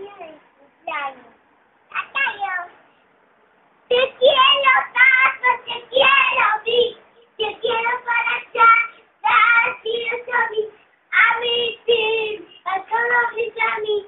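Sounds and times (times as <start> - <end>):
girl singing: 3.9 - 14.0.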